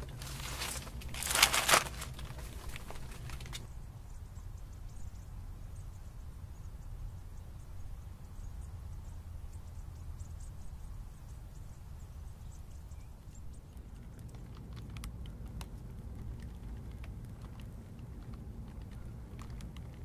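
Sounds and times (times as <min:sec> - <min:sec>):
low steady rumble: 0:00.0 - 0:20.0
fire crackling and popping: 0:13.7 - 0:20.0.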